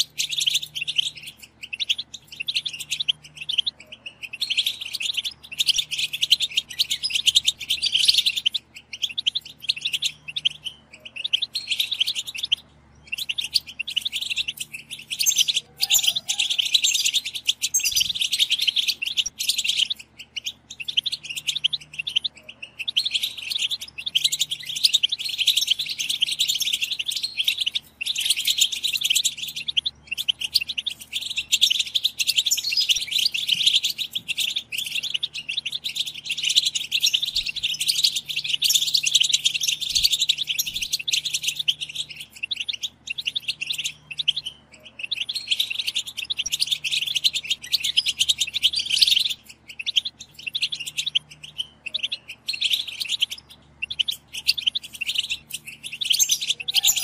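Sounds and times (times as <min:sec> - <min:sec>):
finches chirping chatter: 0:00.0 - 0:57.0.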